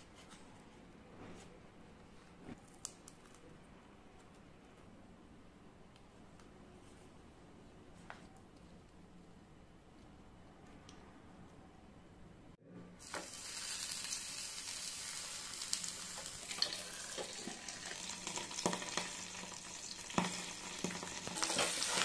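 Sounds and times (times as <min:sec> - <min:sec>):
fish sizzling in oil: 0:13.0 - 0:22.0.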